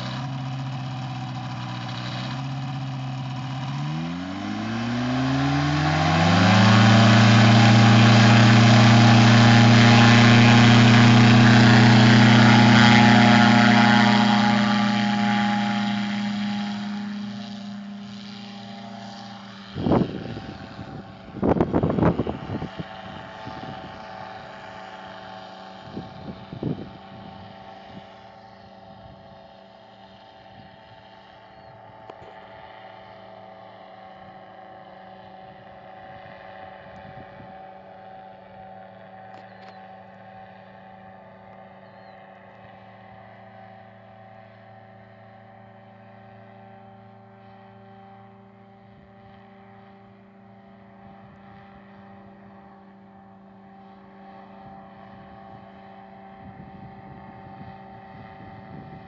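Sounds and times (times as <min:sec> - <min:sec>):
engine and propeller running: 0:00.0 - 0:59.0
wind gusts on microphone: 0:19.6 - 0:24.7, 0:25.8 - 0:28.1, 0:56.3 - 0:59.0.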